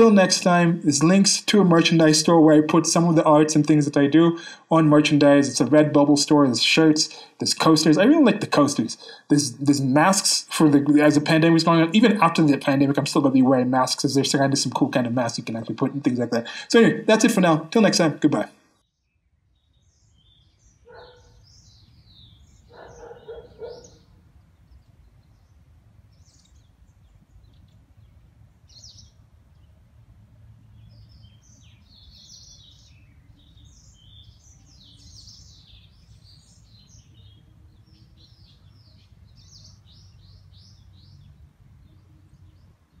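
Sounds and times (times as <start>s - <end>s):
small birds chirping: 0.0s - 43.0s
short low bird calls: 20.1s - 25.4s
low steady rumble: 24.2s - 31.4s.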